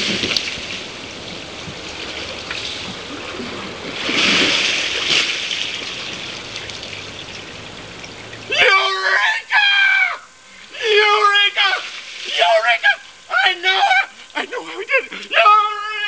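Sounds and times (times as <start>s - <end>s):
water sloshing and splashing: 0.0s - 8.5s, 11.6s - 13.3s.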